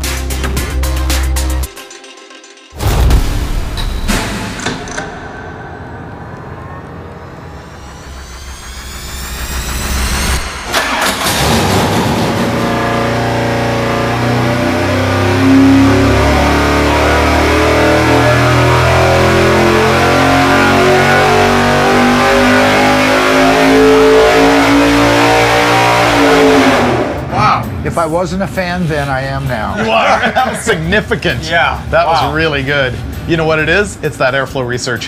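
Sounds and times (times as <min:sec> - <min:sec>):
engine revving at full throttle: 0:07.6 - 0:27.4.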